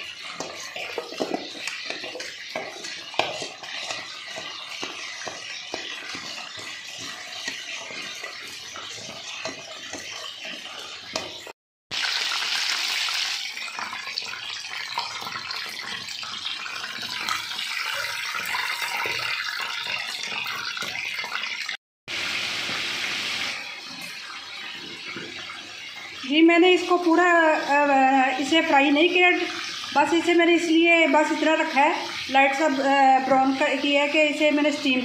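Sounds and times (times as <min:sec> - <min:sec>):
chicken sizzling in hot oil: 0:00.0 - 0:35.0.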